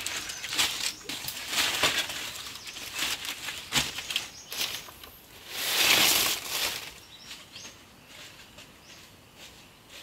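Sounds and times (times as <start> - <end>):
dry plant material crunching: 0.0 - 7.2.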